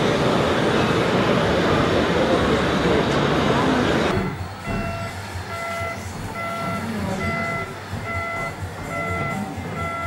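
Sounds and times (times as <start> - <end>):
electronic reversing beeps: 4.1 - 10.0.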